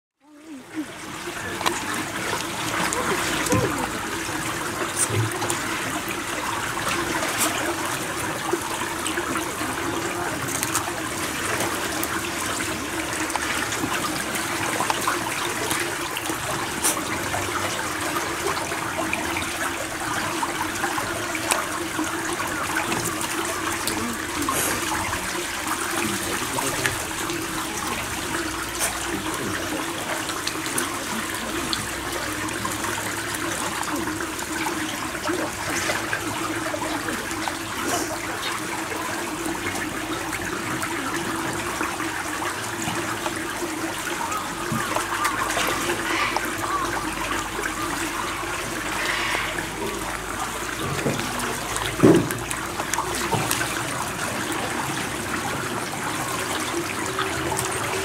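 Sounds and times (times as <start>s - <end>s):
water trickling in a pool: 0.2s - 58.0s.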